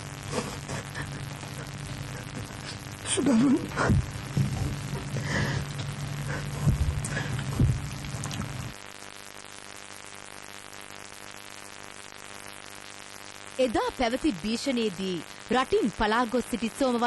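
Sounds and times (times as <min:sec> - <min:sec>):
electrical hum: 0:00.0 - 0:17.0
faint buzz: 0:00.0 - 0:17.0
steady hiss: 0:00.0 - 0:17.0.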